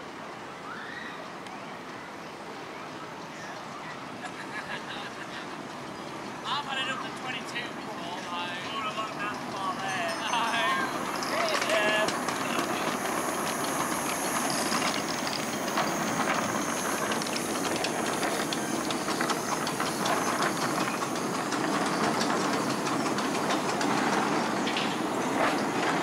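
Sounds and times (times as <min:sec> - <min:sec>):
wheels clicking on track: 0:01.8 - 0:26.0
steam hissing: 0:04.3 - 0:26.0.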